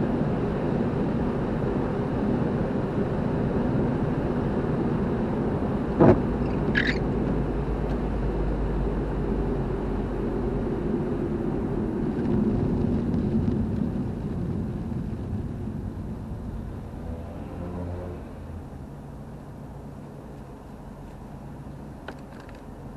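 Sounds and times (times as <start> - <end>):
car driving rumble: 0.0 - 22.9
brief high squeak: 6.4 - 7.1.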